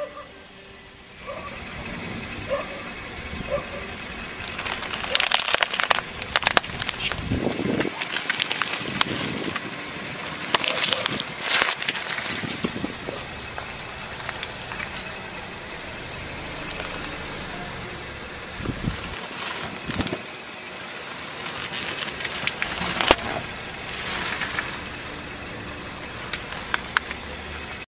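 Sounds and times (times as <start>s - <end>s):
car running: 0.0s - 27.9s
tyre crushing pineapple: 4.4s - 15.1s, 20.9s - 24.9s.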